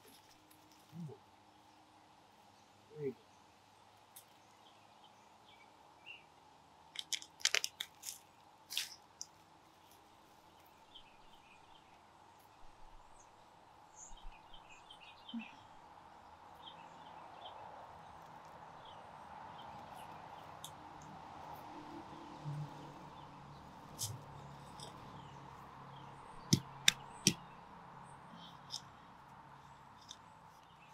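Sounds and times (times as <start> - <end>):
soil crunching and rustling: 0.0 - 1.2, 6.9 - 11.0
hands digging in soil: 7.0 - 10.7.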